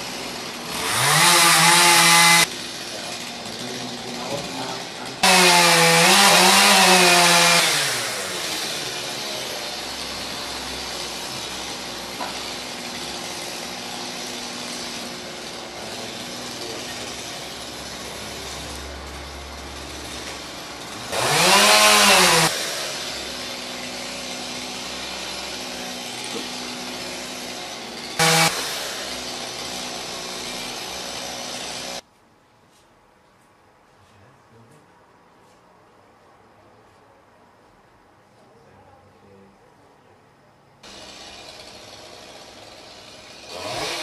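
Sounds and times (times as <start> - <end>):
chainsaw engine idling and revving: 0.0 - 32.0, 40.8 - 44.0.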